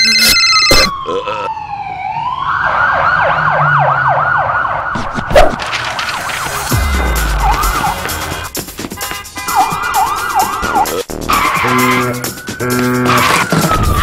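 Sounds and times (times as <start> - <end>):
ambulance siren wailing: 0.0 - 5.0, 6.7 - 8.5, 9.4 - 14.0.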